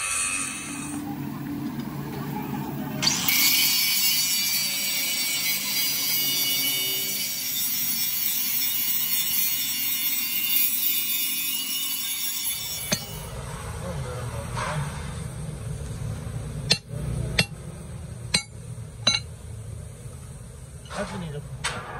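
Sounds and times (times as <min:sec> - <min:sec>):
angle grinder grinding steel: 0:03.0 - 0:13.3.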